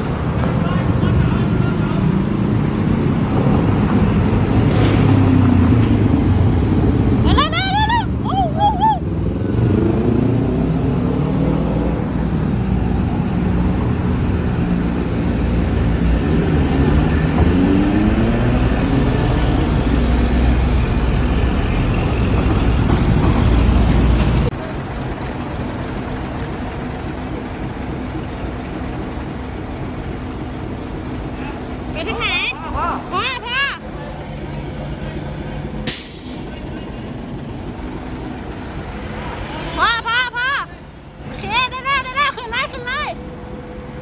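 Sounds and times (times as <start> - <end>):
steady engine hum: 0.0 - 44.0
engine revving: 9.2 - 24.6.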